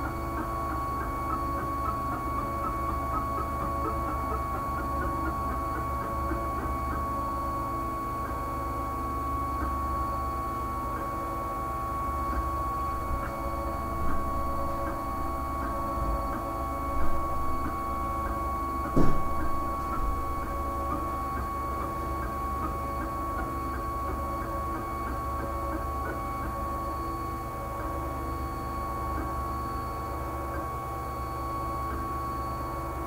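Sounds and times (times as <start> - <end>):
printer high whine: 0.0 - 33.0
printer knocks: 18.9 - 20.2.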